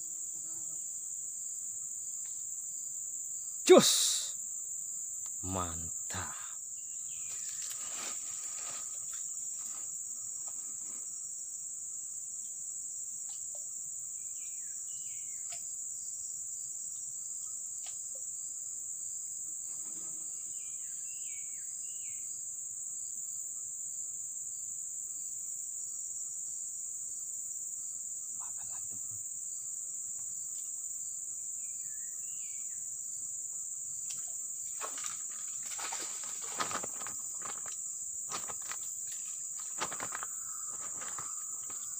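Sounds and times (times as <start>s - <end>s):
insects droning: 0.0s - 41.9s
rustling handling noises: 7.5s - 9.9s, 35.6s - 37.7s.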